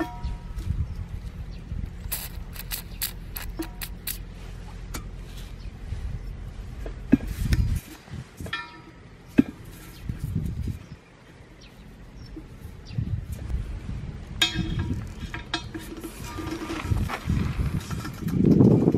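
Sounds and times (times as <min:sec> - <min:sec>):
low rumble: 0:00.0 - 0:18.9
hands working valve stem into rim: 0:02.1 - 0:04.2.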